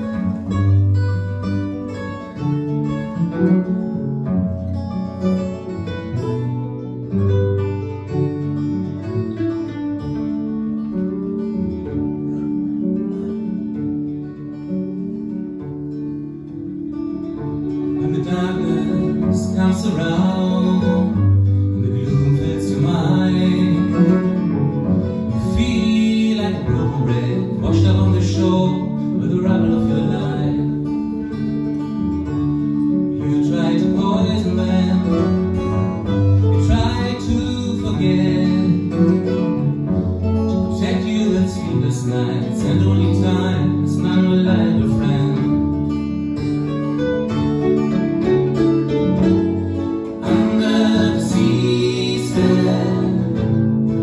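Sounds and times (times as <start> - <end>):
acoustic guitar: 0.0 - 54.0
mandolin: 0.0 - 54.0
person singing: 17.9 - 31.3, 33.2 - 40.0, 40.6 - 45.9, 49.5 - 54.0.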